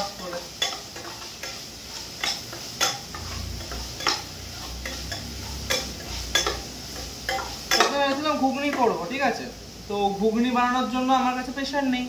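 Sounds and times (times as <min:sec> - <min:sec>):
metal spoon scraping a pan: 0:00.0 - 0:08.8
food sizzling: 0:00.0 - 0:12.0
spoon clinking against pan: 0:00.2 - 0:01.6, 0:02.2 - 0:08.2.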